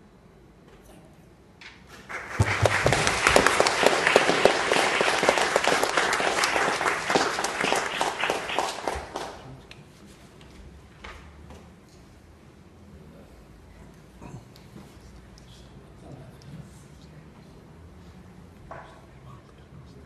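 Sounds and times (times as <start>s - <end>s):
congregation applauding: 1.9s - 9.7s.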